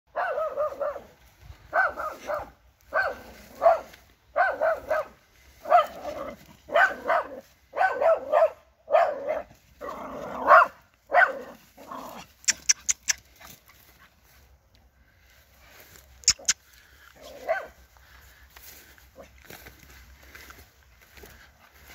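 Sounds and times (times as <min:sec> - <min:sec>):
dog barking: 0:00.1 - 0:09.5, 0:10.4 - 0:11.6, 0:17.2 - 0:17.8
sharp clicks: 0:12.4 - 0:13.2, 0:16.2 - 0:16.6.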